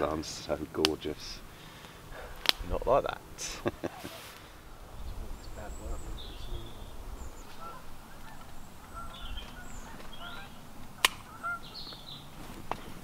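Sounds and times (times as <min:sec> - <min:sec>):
waterfowl honking: 0:05.7 - 0:12.4
sharp click: 0:11.0 - 0:11.2.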